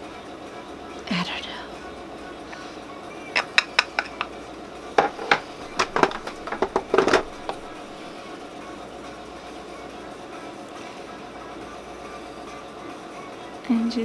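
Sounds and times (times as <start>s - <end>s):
makeup containers clicking and tapping: 3.4s - 4.3s, 5.0s - 8.0s.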